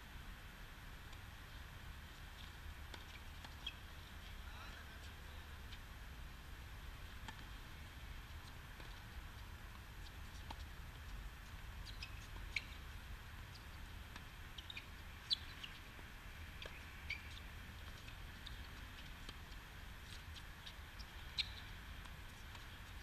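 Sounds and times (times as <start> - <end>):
bird chirps: 14.6 - 15.8, 21.3 - 21.7.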